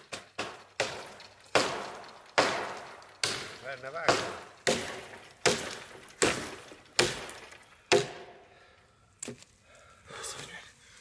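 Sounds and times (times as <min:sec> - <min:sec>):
axe chopping wood: 0:00.0 - 0:08.4.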